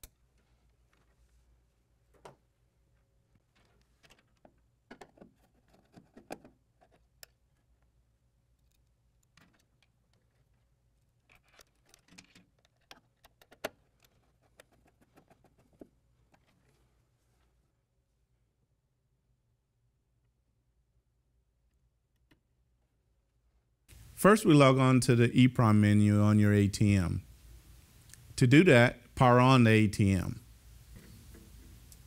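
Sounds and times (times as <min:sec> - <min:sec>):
faint metallic clicks and rattles: 0:08.5 - 0:16.5.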